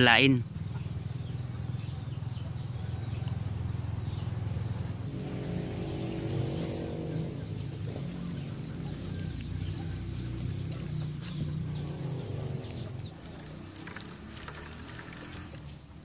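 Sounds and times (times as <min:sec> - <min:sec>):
bird chirping: 0:00.0 - 0:16.0.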